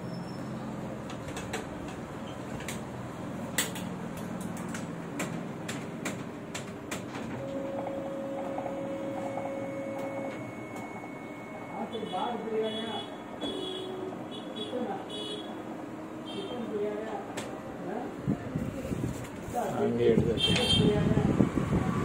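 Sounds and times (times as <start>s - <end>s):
copier hum: 0.0s - 22.0s
copier mechanism clicks and knocks: 1.0s - 2.9s, 3.5s - 10.4s.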